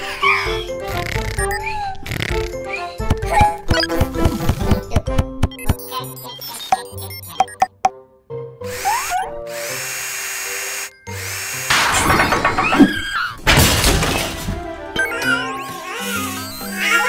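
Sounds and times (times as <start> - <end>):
cartoon power drill whirring: 0.0 - 7.0, 8.6 - 13.3, 15.0 - 17.0
children's background music: 0.0 - 9.5, 14.0 - 17.0.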